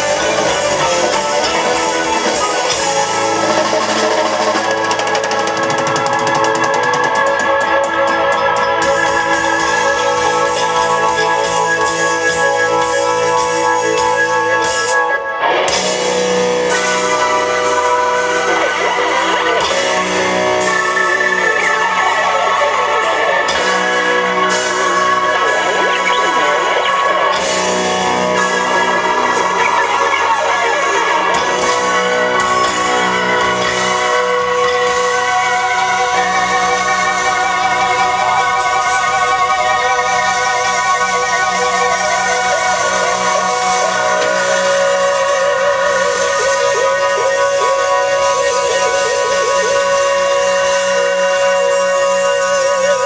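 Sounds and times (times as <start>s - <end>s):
drums: 0.0s - 53.0s
electric guitars: 0.0s - 53.0s
keyboards: 0.0s - 53.0s
live rock band: 0.0s - 53.0s.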